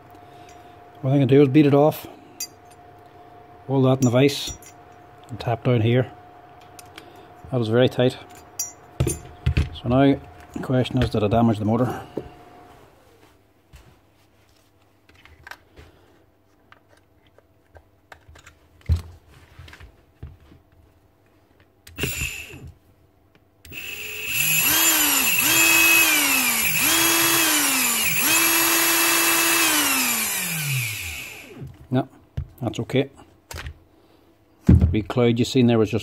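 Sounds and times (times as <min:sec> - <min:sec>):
electric motor whining: 0:22.0 - 0:22.7, 0:23.7 - 0:31.7.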